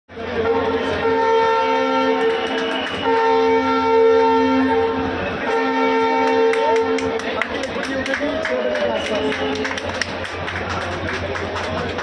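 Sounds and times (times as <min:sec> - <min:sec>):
train horn blast: 0:00.3 - 0:07.4.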